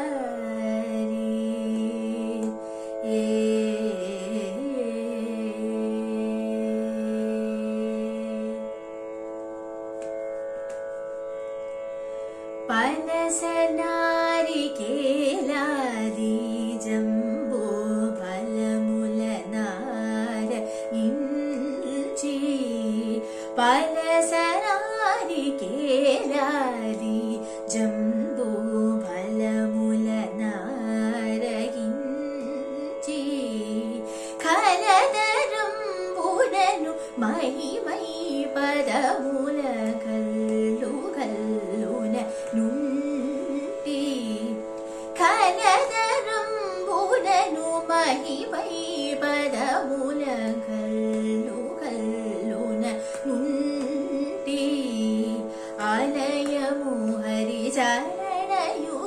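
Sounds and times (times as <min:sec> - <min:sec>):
woman singing devotional song: 0:00.0 - 0:08.7, 0:12.6 - 0:59.0
tanpura drone: 0:00.0 - 0:59.0.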